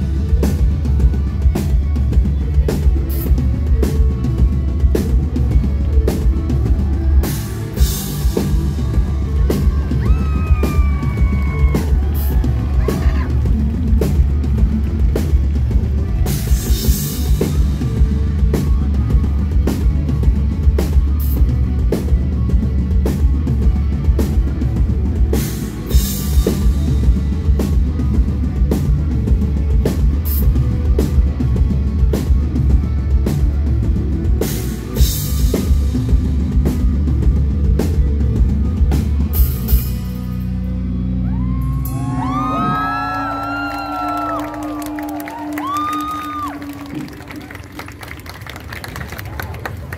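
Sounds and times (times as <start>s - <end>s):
drum kit playing: 0.0s - 48.1s
bass guitar: 0.0s - 49.9s
electric guitars: 0.0s - 49.9s.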